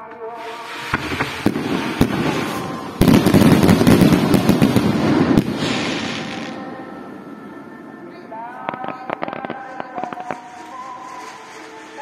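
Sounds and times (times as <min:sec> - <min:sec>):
fireworks bangs and crackling: 0:00.3 - 0:07.6, 0:08.2 - 0:12.0.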